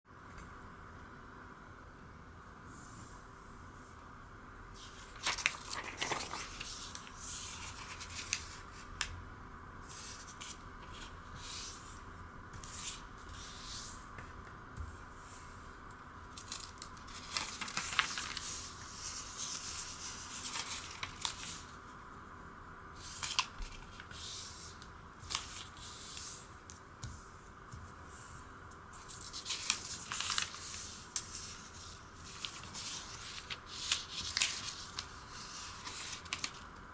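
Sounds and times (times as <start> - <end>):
faint background hiss: 0.1 - 36.9
paper rustling and creasing: 4.8 - 9.1, 9.8 - 12.0, 16.3 - 21.8, 23.0 - 26.5, 29.0 - 36.7.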